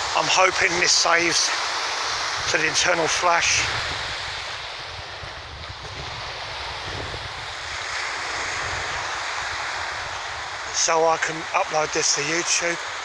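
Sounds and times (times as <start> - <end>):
small waves breaking on shore: 0.0 - 13.0
wind buffeting microphone: 2.0 - 10.7.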